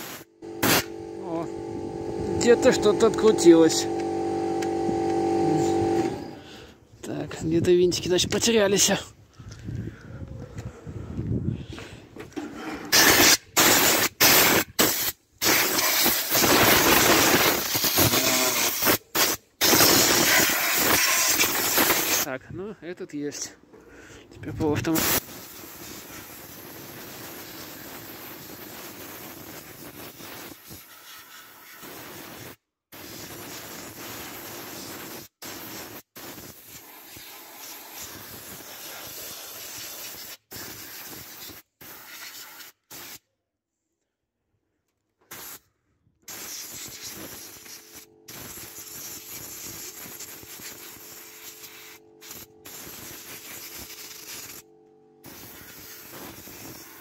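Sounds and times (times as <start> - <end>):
compressed air hissing: 0.0 - 6.6, 12.9 - 22.3, 33.0 - 43.2, 45.3 - 45.6, 46.3 - 54.6, 55.2 - 57.0.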